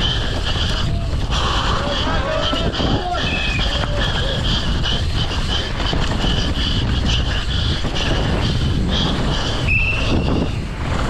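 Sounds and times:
bike rattling: 0.0s - 11.0s
wind rushing on microphone: 0.0s - 11.0s
high squeal: 9.7s - 10.6s.

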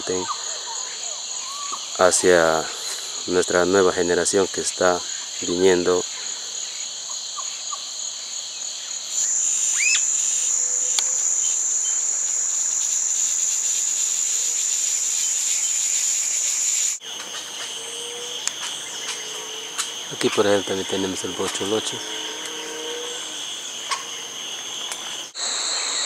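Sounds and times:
high-pitched insect drone: 0.0s - 26.0s
rising bird call: 9.2s - 13.0s.

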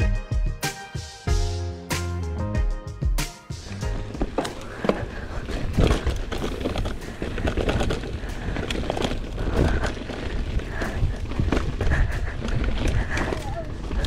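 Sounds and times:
bike tyres grinding on rock: 3.7s - 14.0s
bike clattering over bumps: 3.9s - 14.0s.

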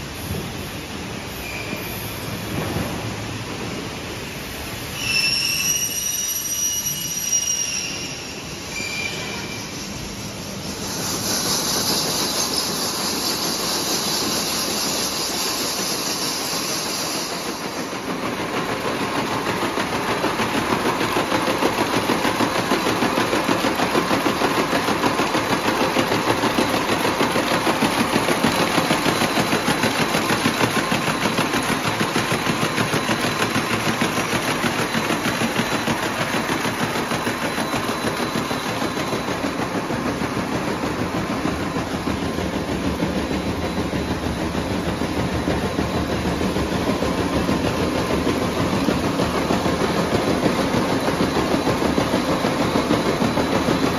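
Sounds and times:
braiding machines metallic clatter: 10.8s - 53.9s.

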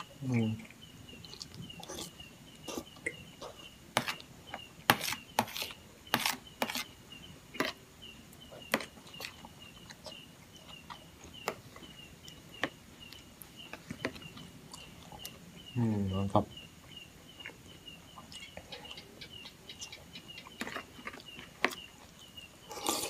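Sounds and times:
mouth sounds of eating: 0.0s - 3.8s, 17.4s - 23.0s
spoon scraping plastic plate: 4.0s - 4.2s, 4.9s - 6.9s.

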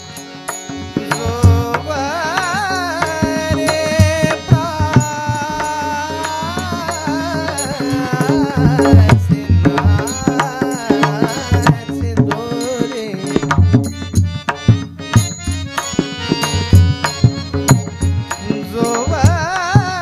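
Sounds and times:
harmonium: 0.0s - 20.0s
person singing: 1.0s - 13.7s, 18.3s - 20.0s.

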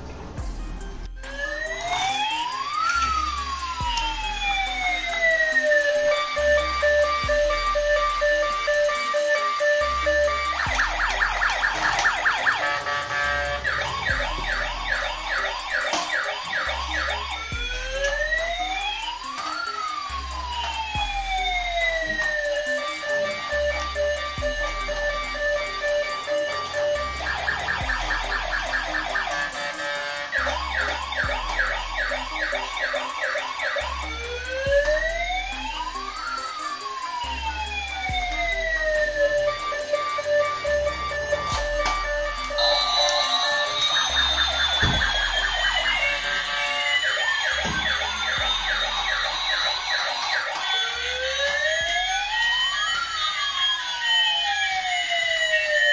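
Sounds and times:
toy siren yelp and wail: 1.2s - 55.9s
short beeping tune: 40.8s - 50.0s.

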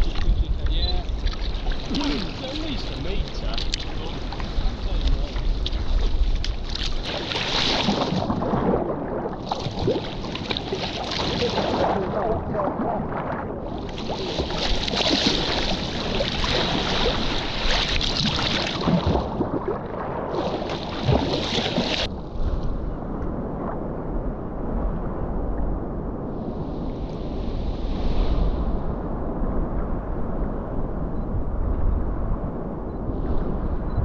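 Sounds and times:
sea water splashing against hull: 0.0s - 22.8s
wind rumbling on microphone: 0.0s - 34.0s.

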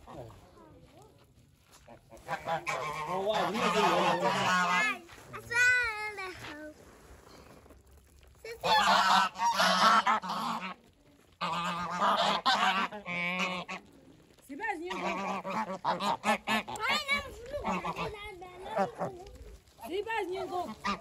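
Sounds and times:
geese honking: 1.9s - 5.0s, 8.5s - 10.8s, 11.4s - 14.0s, 14.7s - 19.1s, 20.5s - 21.0s.

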